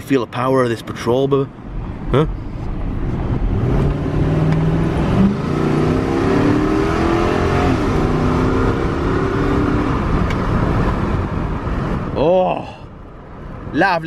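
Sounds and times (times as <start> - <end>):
suv engine accelerating: 1.6 - 12.2.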